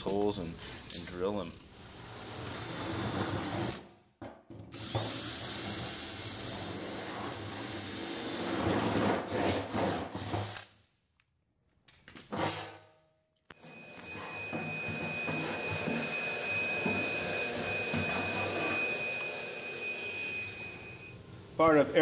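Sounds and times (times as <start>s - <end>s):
cordless drill whining: 1.7s - 3.8s, 4.7s - 8.6s, 13.6s - 21.2s.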